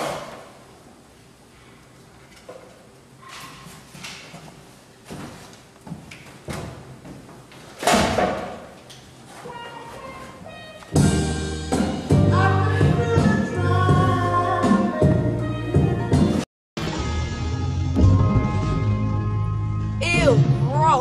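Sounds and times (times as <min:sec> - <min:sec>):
footsteps on a wooden stage: 0:03.8 - 0:07.8
loud music with steady bass: 0:11.0 - 0:21.0.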